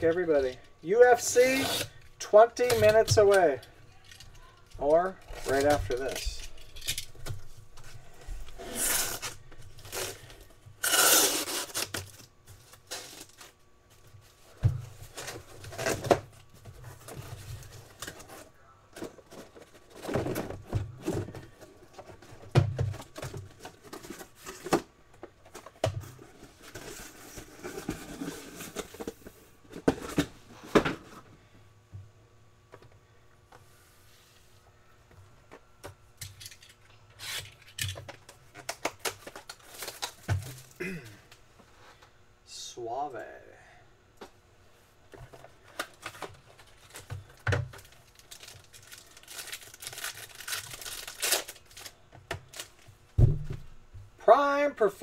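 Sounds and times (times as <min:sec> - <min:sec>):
cardboard tearing and scraping: 0:08.6 - 0:13.5, 0:48.3 - 0:51.9.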